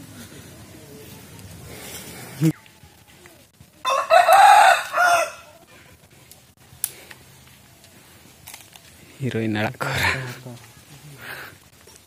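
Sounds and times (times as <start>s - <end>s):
rooster crowing: 3.8s - 5.6s.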